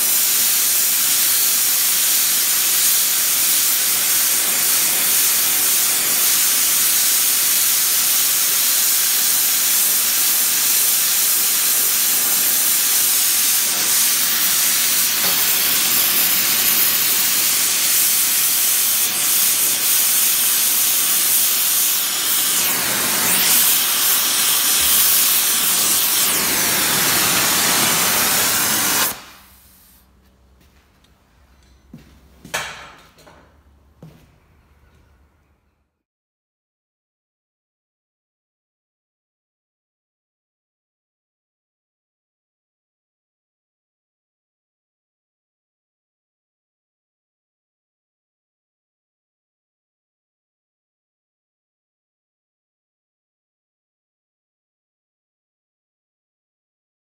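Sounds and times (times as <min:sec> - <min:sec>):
gas torch flame hissing: 0:00.0 - 0:30.1.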